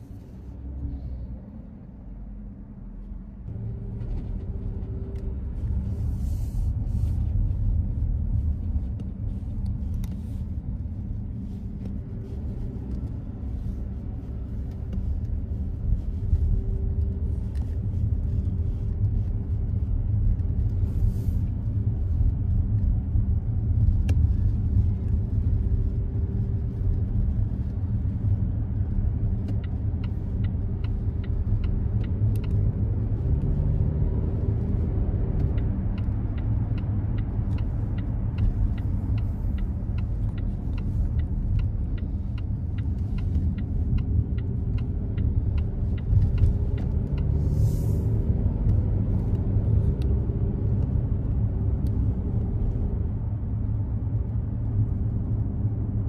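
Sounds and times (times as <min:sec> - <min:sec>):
car engine and road rumble: 0:00.0 - 0:56.0
light regular ticking: 0:28.3 - 0:33.4, 0:35.3 - 0:47.4.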